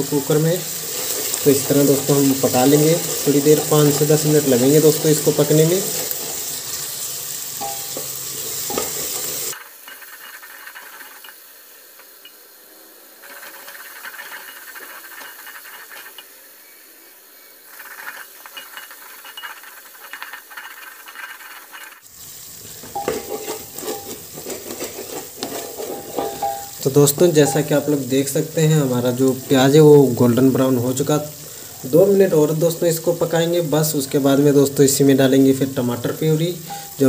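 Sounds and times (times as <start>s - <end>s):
onions sizzling in oil: 0.0s - 37.0s
wooden spatula scraping pot: 0.6s - 11.4s, 13.2s - 16.3s, 17.7s - 28.1s, 36.6s - 37.0s.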